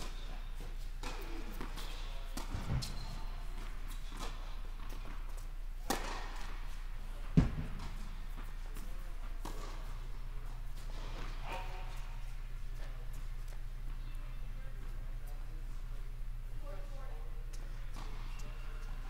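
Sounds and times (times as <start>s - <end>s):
steady low hum: 0.0s - 19.0s
tennis balls struck and bouncing: 1.0s - 12.1s.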